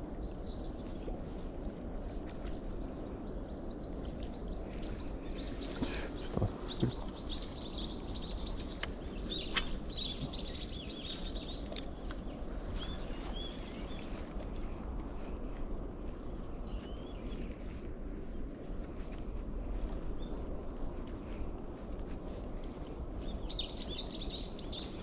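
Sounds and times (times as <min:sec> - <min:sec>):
low background rumble: 0:00.0 - 0:25.0
small birds chirping: 0:02.4 - 0:18.6, 0:22.8 - 0:25.0.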